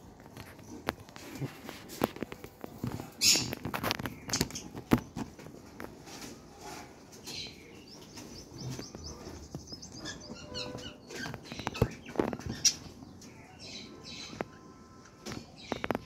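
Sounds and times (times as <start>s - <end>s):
budgerigars chirping: 7.4s - 14.4s.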